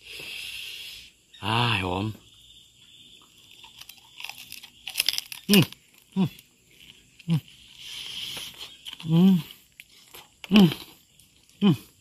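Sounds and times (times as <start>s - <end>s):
crunching crispy food: 3.3s - 11.6s.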